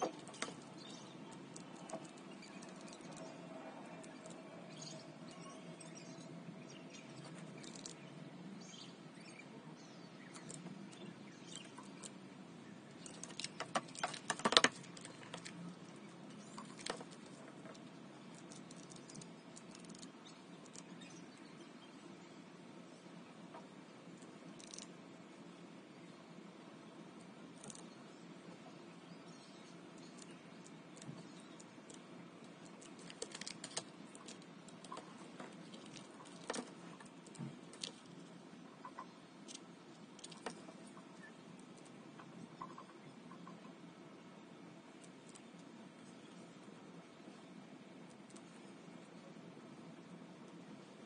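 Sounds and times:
mechanical keyboard clicks and knocks: 13.1 - 15.4.

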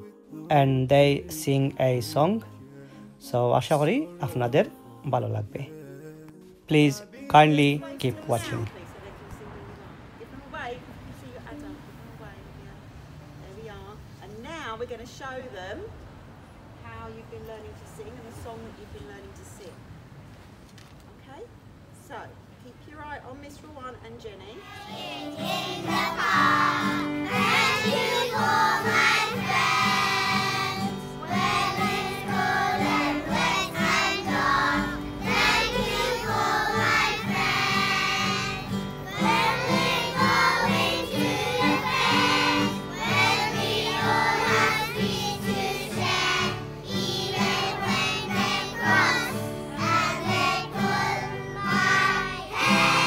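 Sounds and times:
children singing in unison: 24.7 - 53.0
strummed acoustic guitar: 24.7 - 53.0.

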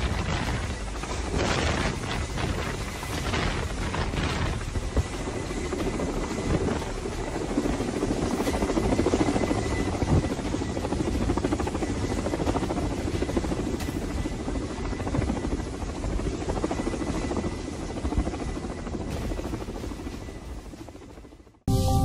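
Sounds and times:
helicopter rotor chop: 0.0 - 21.5
faint high tone: 21.7 - 22.0.

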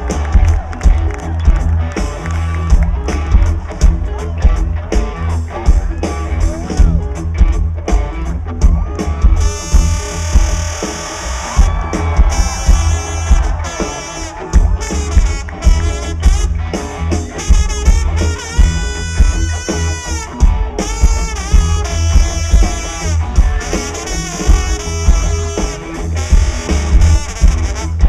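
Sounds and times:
drum kit: 0.0 - 28.0
electric guitars: 0.0 - 28.0
heavy bass: 0.0 - 28.0
trombone playing melody: 9.4 - 11.7, 12.3 - 28.0.

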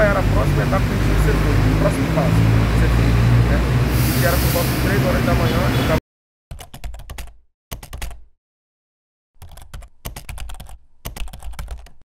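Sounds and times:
keyboard key clicks: 9.4 - 12.0.

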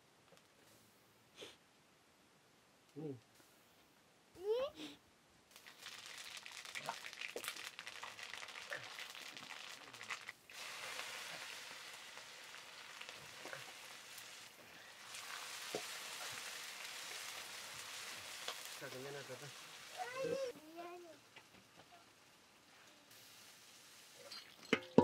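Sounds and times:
food sizzling in oil: 5.5 - 25.0
small crackles: 5.5 - 25.0.

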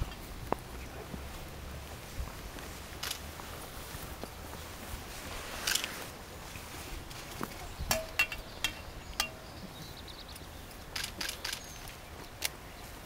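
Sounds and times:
faint outdoor background: 0.0 - 13.0
sharp metallic clicks and clinks: 7.9 - 9.4.

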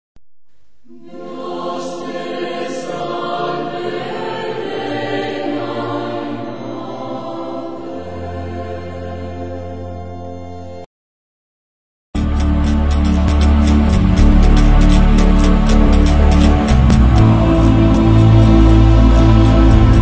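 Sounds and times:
choir singing sustained notes: 0.8 - 10.9, 12.2 - 20.0.

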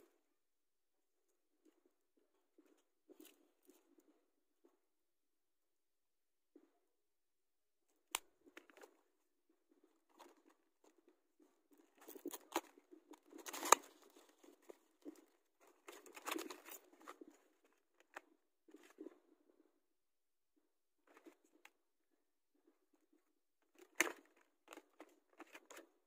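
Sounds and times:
packaging crackling and rustling: 11.9 - 17.8
scissors cutting cardboard box: 12.0 - 17.5.

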